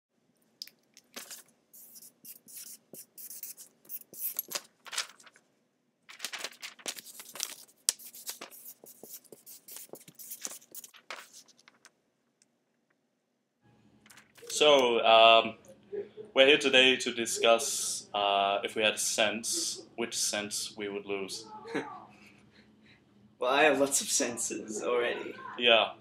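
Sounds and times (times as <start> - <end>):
paper scratching and rustling: 1.2 - 5.4, 6.1 - 11.9.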